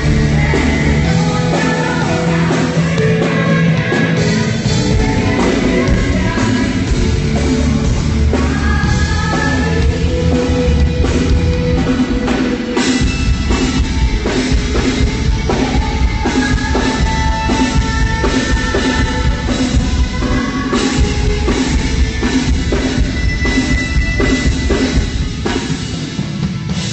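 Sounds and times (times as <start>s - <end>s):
drum kit beat: 0.0s - 26.9s
electric guitar: 0.0s - 26.9s.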